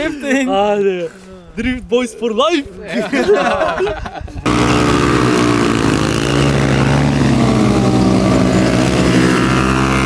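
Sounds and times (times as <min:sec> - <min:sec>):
motorcycle engines revving high: 0:04.4 - 0:10.0.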